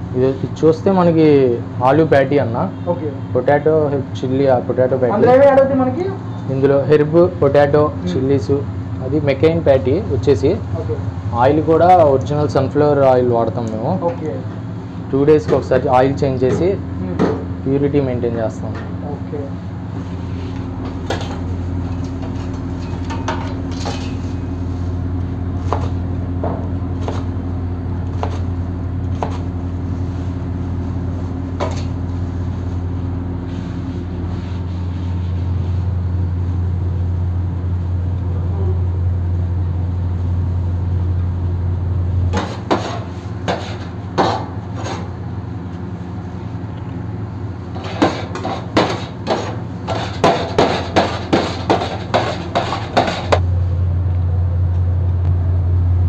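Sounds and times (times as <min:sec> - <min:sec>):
low kitchen hum: 0:00.0 - 0:56.0
metal spatula chopping on steel tray: 0:42.3 - 0:45.1, 0:47.8 - 0:53.4.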